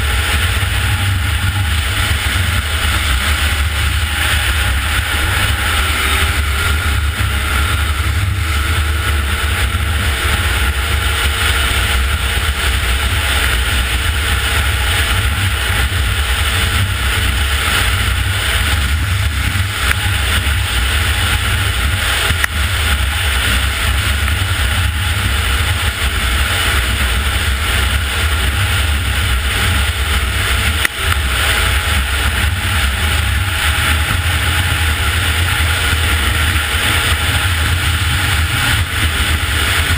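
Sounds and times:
snowmobile engine running: 0.0 - 39.9
wind over microphone: 0.0 - 39.9.

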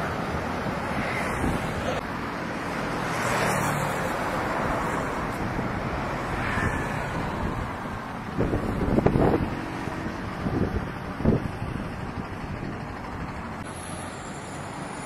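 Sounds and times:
cars driving by: 0.0 - 15.0
motorcycles passing: 0.0 - 15.0
truck driving by: 1.4 - 15.0
wind buffeting microphone: 5.1 - 13.6.

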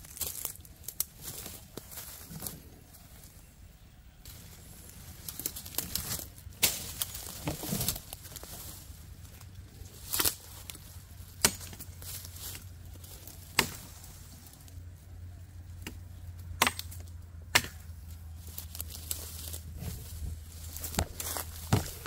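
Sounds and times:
knife chopping branches: 5.4 - 8.0, 11.3 - 11.9, 13.4 - 13.9, 15.8 - 18.0, 20.7 - 22.0.

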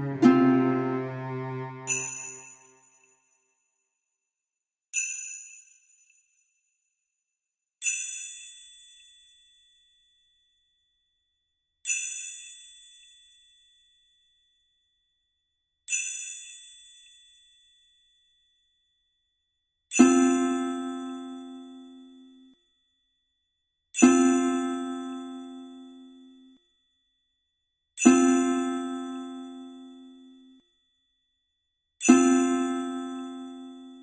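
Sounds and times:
high bell-like notes: 0.0 - 2.8
lower bell note: 0.0 - 2.8.

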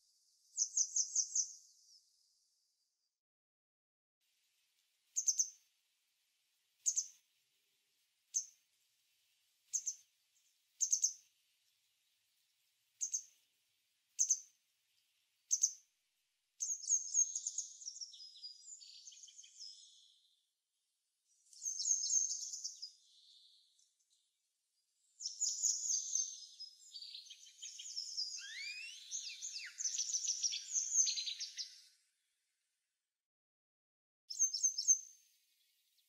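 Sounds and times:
songbird chirps: 0.0 - 3.1, 4.5 - 32.3, 34.3 - 36.0
bird twittering: 26.9 - 31.8.

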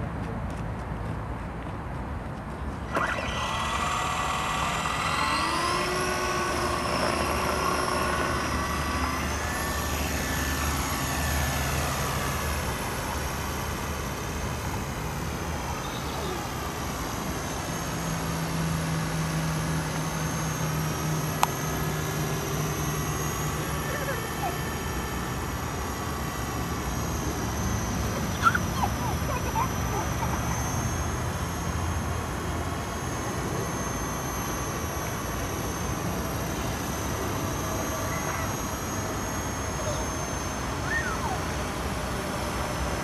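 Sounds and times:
model helicopter rotor whine: 2.8 - 43.0.

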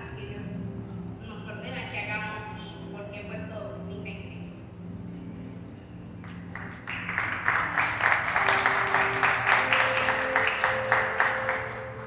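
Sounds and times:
soft background music: 0.0 - 12.0
crowd applauding: 6.2 - 12.0.

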